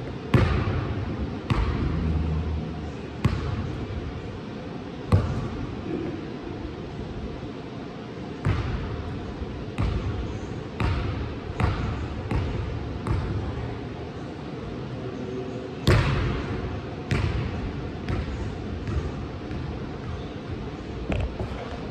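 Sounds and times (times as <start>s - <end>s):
basketball bouncing on gym floor: 0.3s - 2.4s, 3.2s - 3.9s, 5.1s - 5.6s, 8.4s - 9.1s, 9.7s - 13.4s, 15.8s - 20.4s.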